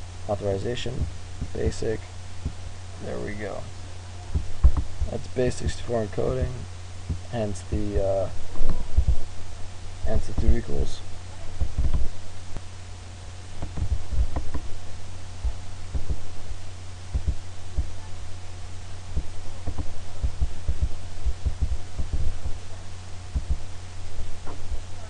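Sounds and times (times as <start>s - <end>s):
low electrical hum: 0.0s - 25.0s
dull thumps: 2.4s - 2.7s, 4.3s - 5.8s, 6.4s - 7.9s, 8.5s - 9.3s, 11.5s - 12.7s, 13.6s - 18.2s, 19.0s - 25.0s.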